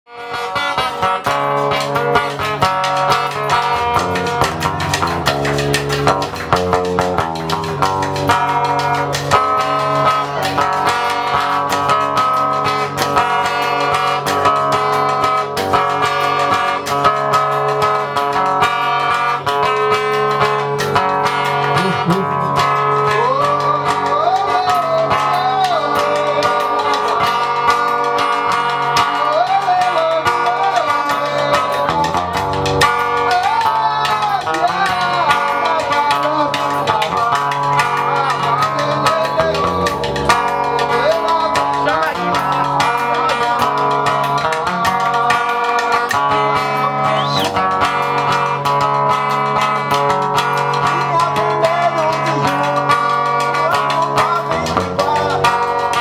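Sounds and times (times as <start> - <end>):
plucked strings: 0.1 - 56.0
person singing: 20.8 - 48.9, 49.6 - 56.0.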